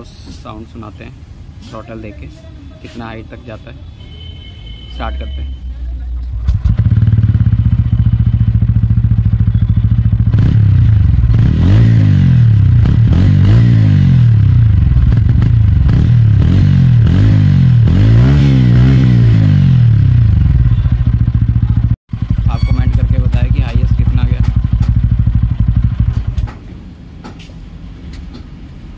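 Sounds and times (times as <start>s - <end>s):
motorcycle engine revving: 6.3s - 26.7s.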